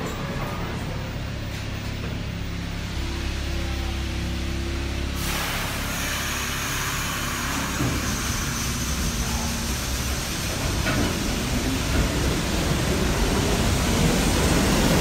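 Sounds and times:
subway train rumble with whine: 0.0s - 15.0s.

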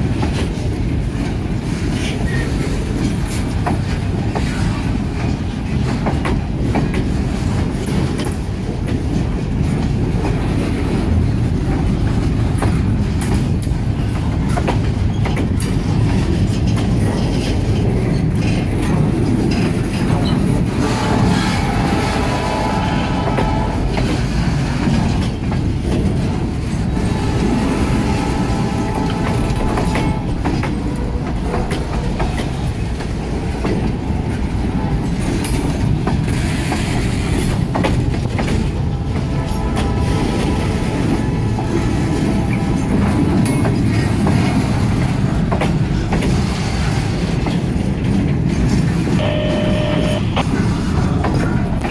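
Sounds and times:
clanks over rail joints: 0.0s - 51.9s
train wheels rumbling: 0.0s - 51.9s.

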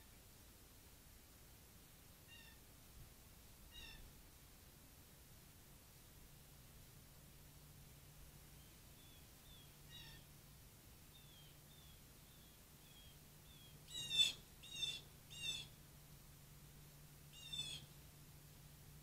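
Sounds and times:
soft high bird call: 2.3s - 2.6s, 3.7s - 4.1s, 8.6s - 10.3s, 11.1s - 15.8s, 17.3s - 18.0s.

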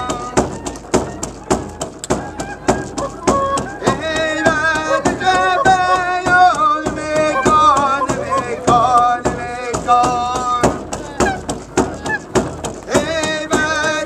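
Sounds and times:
man singing: 0.0s - 0.6s, 3.6s - 11.3s, 12.9s - 14.0s
steady drum beat: 0.0s - 14.0s.

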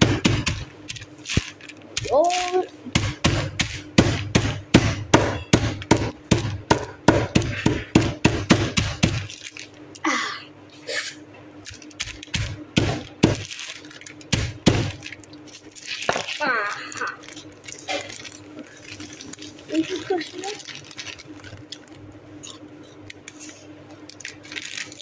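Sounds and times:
hand pounding a bag of chips: 0.0s - 9.6s, 11.7s - 21.9s.

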